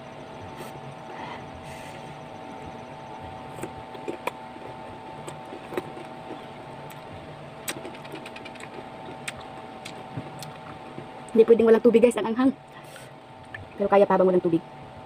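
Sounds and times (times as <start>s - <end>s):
steady low hum: 0.0s - 15.0s
chewing crunches: 3.5s - 11.1s.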